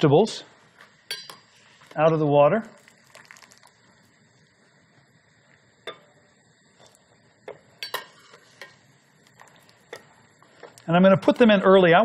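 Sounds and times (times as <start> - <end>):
metal spoon clinking on cookware: 1.1 - 1.5, 7.5 - 8.8.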